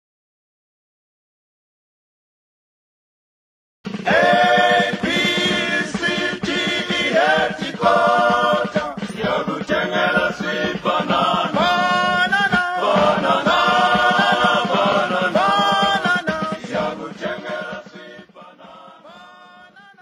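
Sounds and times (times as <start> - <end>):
choir chanting: 4.0 - 20.0.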